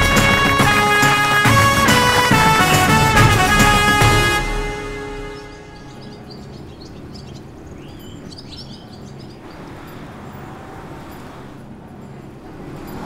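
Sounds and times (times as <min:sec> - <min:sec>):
music sting: 0:00.0 - 0:06.6
birds chirping: 0:00.0 - 0:13.0
steady low background noise: 0:00.0 - 0:13.0.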